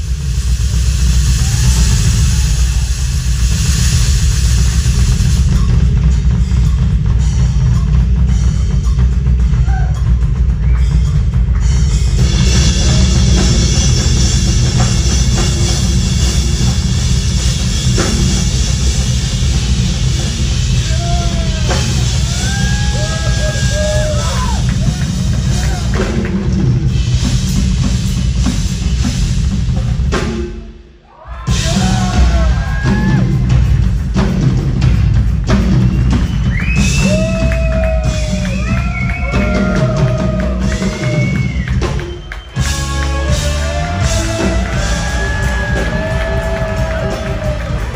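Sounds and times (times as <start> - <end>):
rock drum solo: 0.0 - 47.9.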